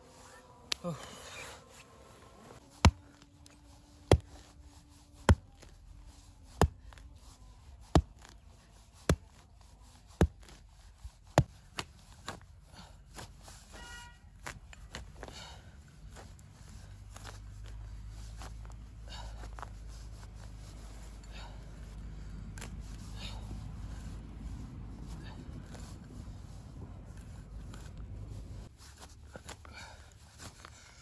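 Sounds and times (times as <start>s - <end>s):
hand tool chopping: 2.7s - 4.6s, 5.2s - 12.4s.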